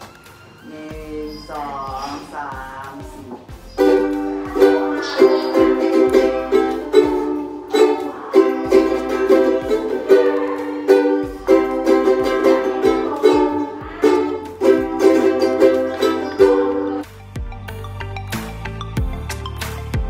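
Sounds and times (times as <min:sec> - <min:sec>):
ukuleles strumming chords: 0:03.4 - 0:17.6.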